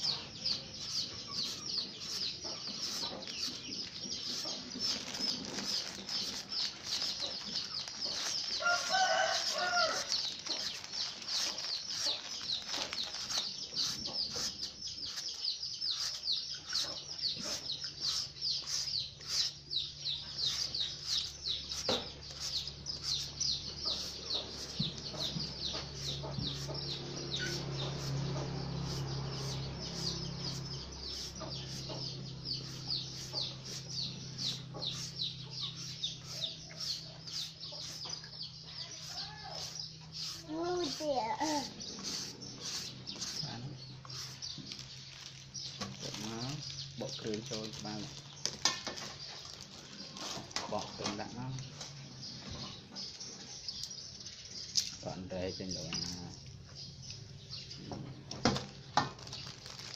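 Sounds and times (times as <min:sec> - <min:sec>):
rapid high chirping: 0:00.0 - 0:48.2
chickens clucking: 0:16.0 - 0:40.4.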